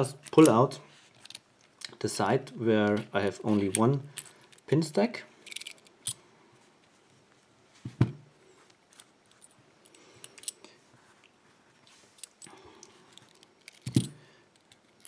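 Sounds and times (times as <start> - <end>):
small metal parts clicking: 5.4 - 6.2, 8.9 - 10.7, 12.2 - 15.0.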